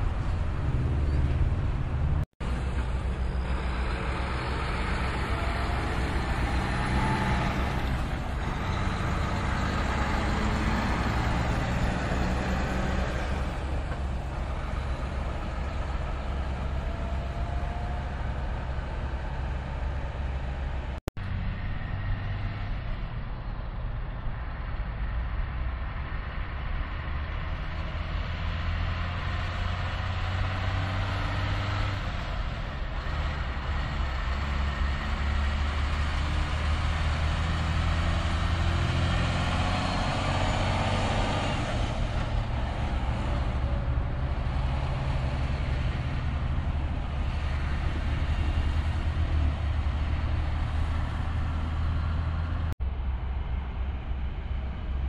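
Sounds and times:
truck diesel engine passing: 0.0s - 55.0s.

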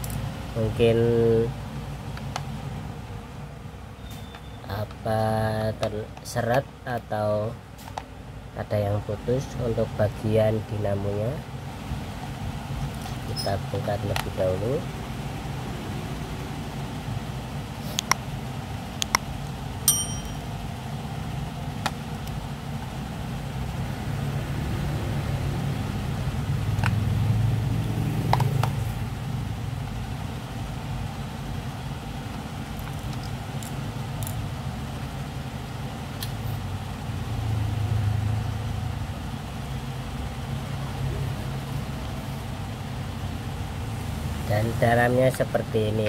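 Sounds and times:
short metallic ring: 19.9s - 20.6s.

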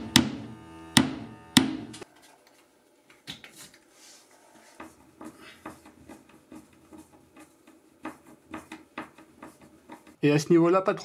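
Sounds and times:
hands clicking and scratching at wall: 2.2s - 3.9s, 4.6s - 10.2s.

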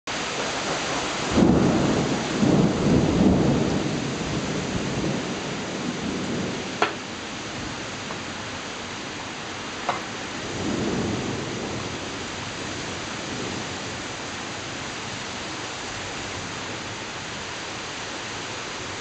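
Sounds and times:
heavy rain pouring: 0.1s - 19.0s
low thunder rumbling: 0.3s - 15.4s
sharp tap: 6.8s - 7.0s.

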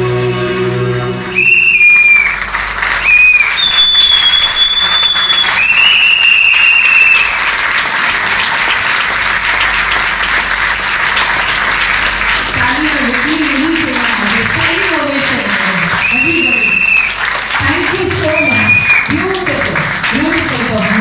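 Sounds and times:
loud high whistles: 1.4s - 7.5s, 16.0s - 17.2s, 18.2s - 19.1s
audience applauding: 1.4s - 21.0s.

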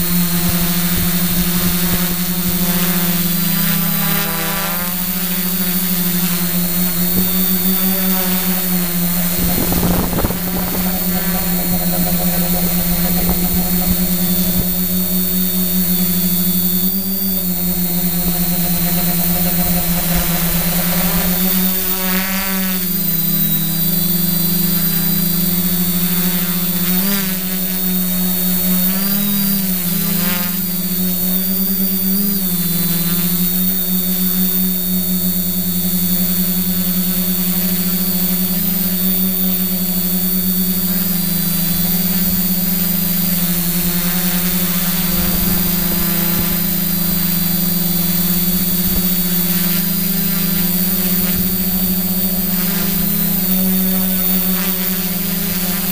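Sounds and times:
wind from propellers: 0.0s - 26.1s, 35.4s - 55.9s
quadcopter motors whirring: 0.0s - 55.9s.

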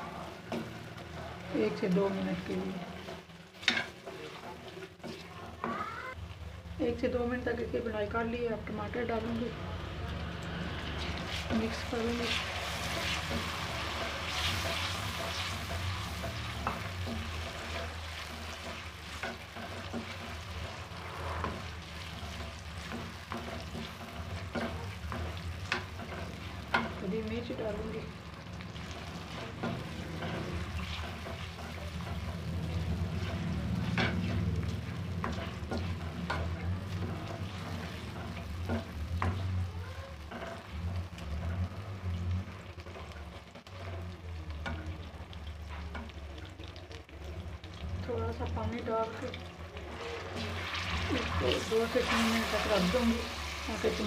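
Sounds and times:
tomatoes sizzling in oil: 0.0s - 54.0s
spatula scraping pan: 0.2s - 6.1s, 10.8s - 44.9s.

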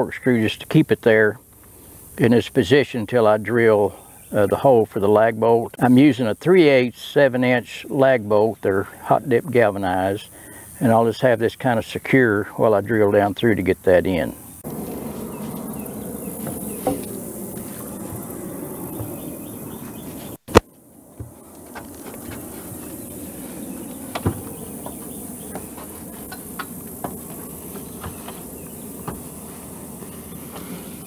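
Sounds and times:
insects hissing: 0.0s - 20.4s, 21.0s - 31.0s
wooden beam and ladder knocking: 24.1s - 29.3s.

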